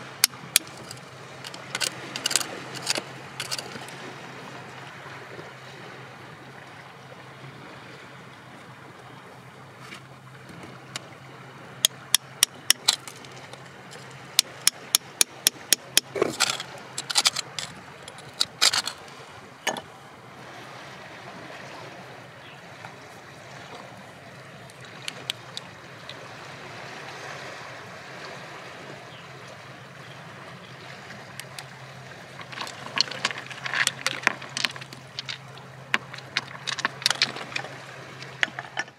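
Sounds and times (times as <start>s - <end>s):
hand tool tapping on rock: 0.2s - 3.9s, 11.8s - 19.0s, 32.4s - 38.9s.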